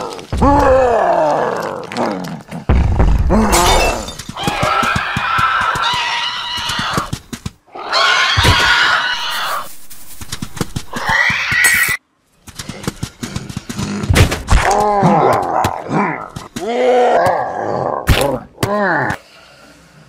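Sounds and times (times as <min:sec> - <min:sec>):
deep dinosaur growl: 0:00.0 - 0:03.5
shrill dinosaur screeches: 0:07.7 - 0:09.7, 0:10.9 - 0:12.0.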